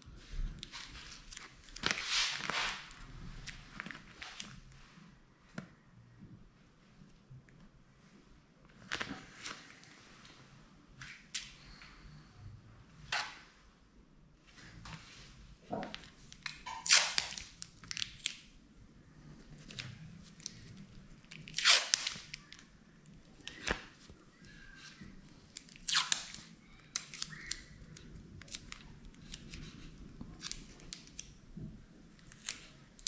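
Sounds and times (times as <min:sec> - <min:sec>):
masking tape ripping: 0:16.6 - 0:18.4, 0:21.3 - 0:22.6, 0:25.6 - 0:27.7.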